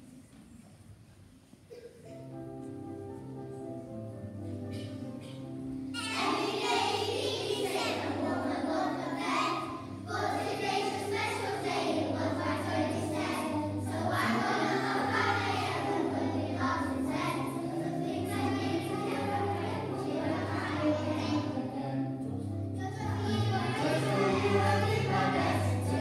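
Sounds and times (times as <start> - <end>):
children singing: 6.0 - 22.2, 22.8 - 26.0.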